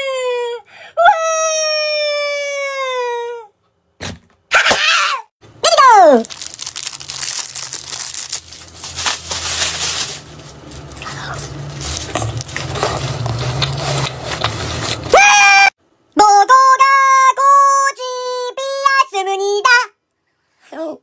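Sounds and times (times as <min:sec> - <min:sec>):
plastic wrapper crinkling: 0:05.9 - 0:15.1
ice pop crunching being chewed: 0:11.8 - 0:15.1.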